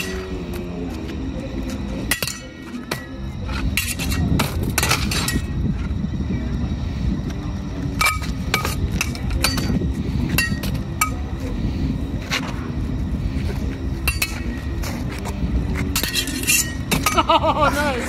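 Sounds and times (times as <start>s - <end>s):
swords clashing on metal: 2.1s - 3.1s, 3.8s - 4.2s, 15.9s - 17.3s.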